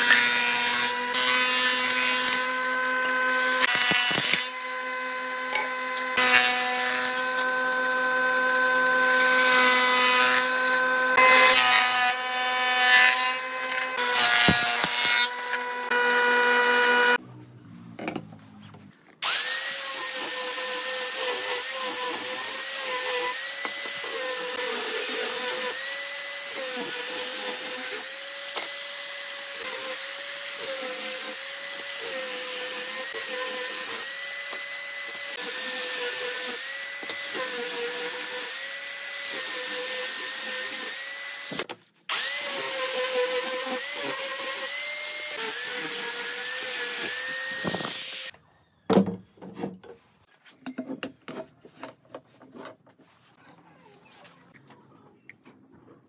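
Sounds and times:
angle grinder sanding wood: 0:19.2 - 0:48.3.

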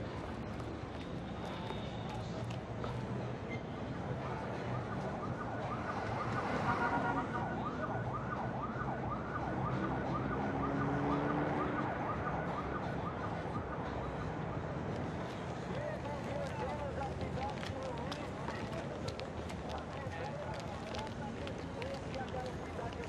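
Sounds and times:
street hum: 0:00.0 - 0:23.0
emergency vehicle siren yelping: 0:04.6 - 0:14.0.

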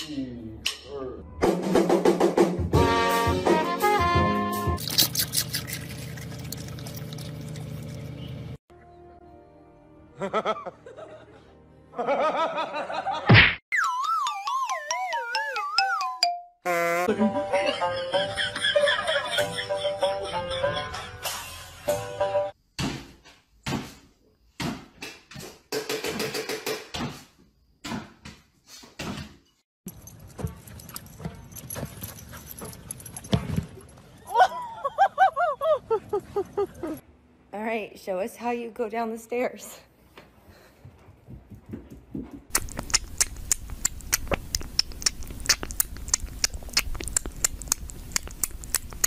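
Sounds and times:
sharp clicks and crackles: 0:42.5 - 0:49.0.

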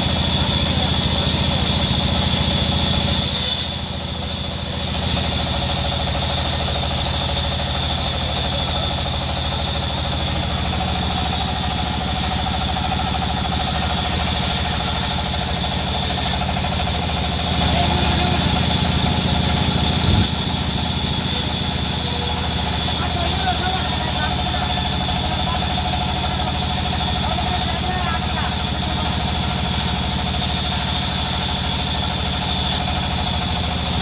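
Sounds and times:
belt drive drone: 0:04.6 - 0:31.4.

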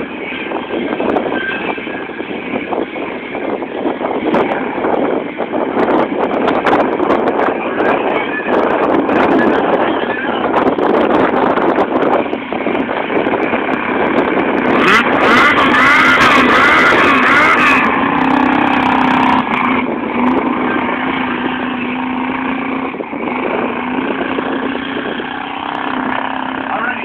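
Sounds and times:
truck engine revving: 0:00.0 - 0:27.0.

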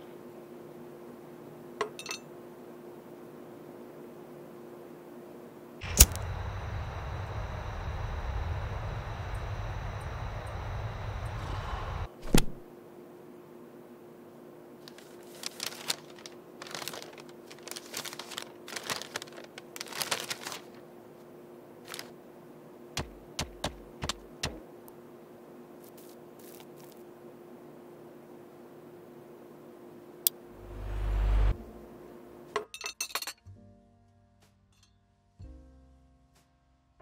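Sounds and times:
sharp click: 0:05.8 - 0:08.1
noisy rumble: 0:05.8 - 0:12.7, 0:30.3 - 0:32.3
stiff paper crinkling: 0:14.8 - 0:20.9, 0:21.8 - 0:22.2, 0:25.9 - 0:27.0.

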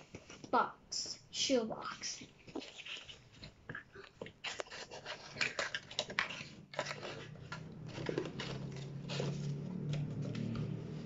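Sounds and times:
cardboard scraping and crinkling: 0:02.2 - 0:11.0.

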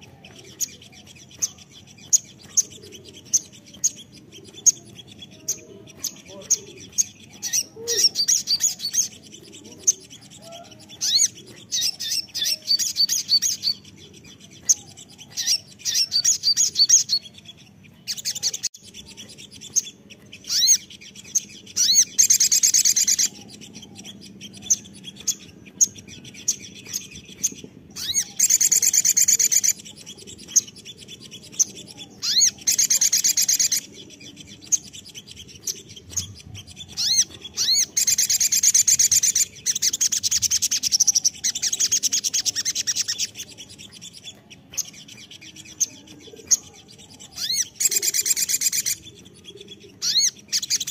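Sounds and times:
sunbird trills and chirps: 0:00.0 - 0:50.9.

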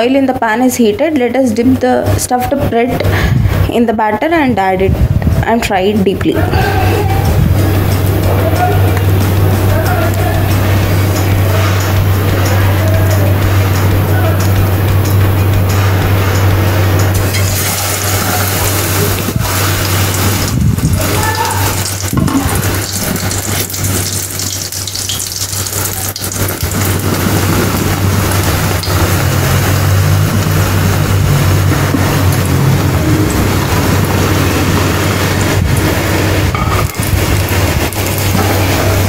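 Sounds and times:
steady low hum: 0:00.0 - 0:39.0
batter sizzling in hot oil: 0:14.9 - 0:39.0.

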